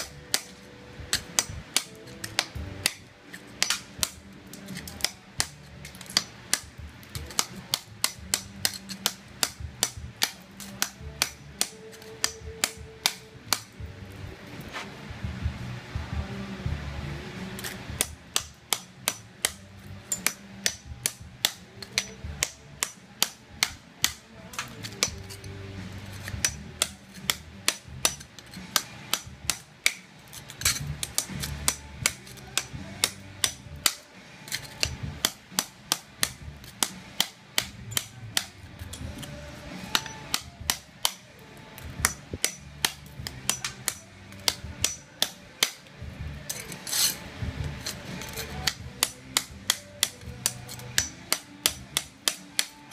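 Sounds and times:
ceramic tile chipping: 0.0s - 13.7s, 17.6s - 41.2s, 41.8s - 45.8s
hammer striking chisel: 0.0s - 13.8s, 17.5s - 52.9s.

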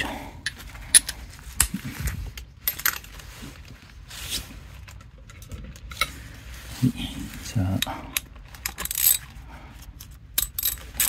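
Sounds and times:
metal tools clinking: 2.6s - 3.2s, 8.1s - 9.3s, 10.3s - 11.0s.

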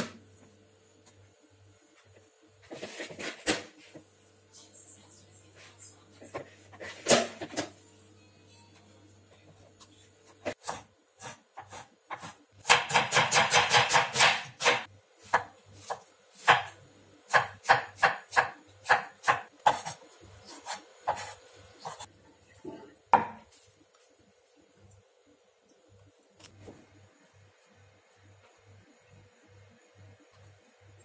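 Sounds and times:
knife chopping on wooden board: 10.4s - 22.1s.

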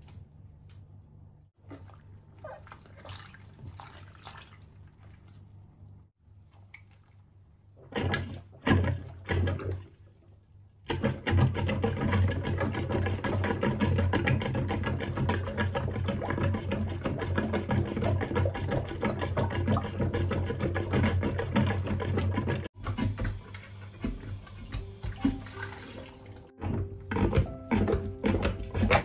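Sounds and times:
plunger pumping in sink: 1.6s - 5.6s, 6.4s - 29.0s
water splashing: 1.6s - 10.3s, 24.0s - 29.0s.

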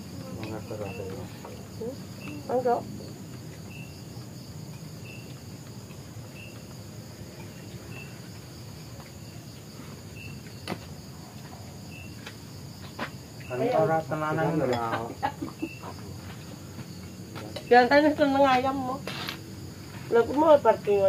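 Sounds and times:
insect chirp: 0.0s - 21.0s
insects trilling: 0.0s - 21.0s.

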